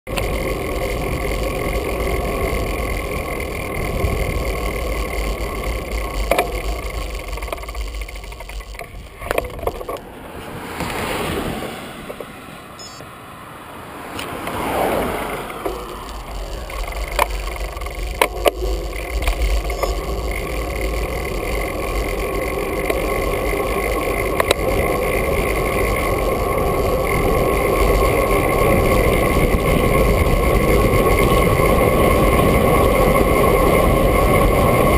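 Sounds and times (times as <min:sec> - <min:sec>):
road noise: 0:00.0 - 0:34.9
wind rushing over microphone: 0:00.1 - 0:13.0, 0:14.1 - 0:34.9
car passing by: 0:10.0 - 0:16.2.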